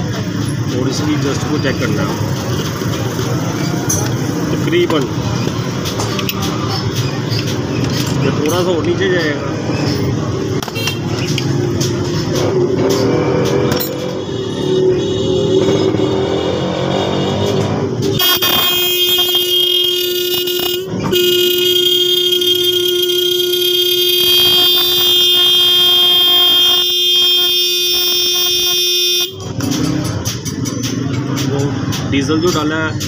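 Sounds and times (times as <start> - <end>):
electric car horn honking: 18.2 - 29.5.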